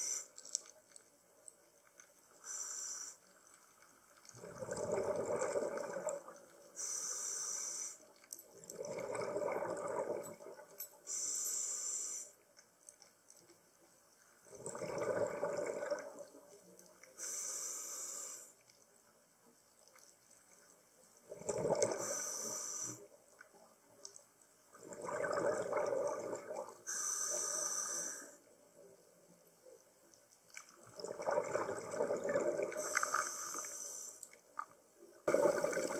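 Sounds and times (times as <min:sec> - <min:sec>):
regulator inhale hiss: 0:00.0 - 0:00.4, 0:02.4 - 0:03.4, 0:06.8 - 0:08.1, 0:11.0 - 0:12.4, 0:17.2 - 0:18.6, 0:22.0 - 0:23.1, 0:26.8 - 0:28.5, 0:32.8 - 0:34.3
exhaled bubbles rushing: 0:04.3 - 0:06.4, 0:08.7 - 0:10.6, 0:14.5 - 0:16.4, 0:21.3 - 0:22.1, 0:24.8 - 0:26.8, 0:30.8 - 0:32.8, 0:35.3 - 0:35.9.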